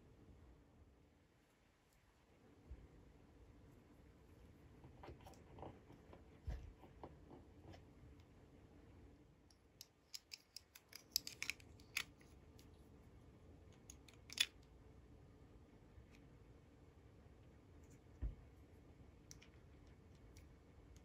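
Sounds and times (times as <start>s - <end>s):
plastic toy dishes clicking: 9.8s - 12.1s.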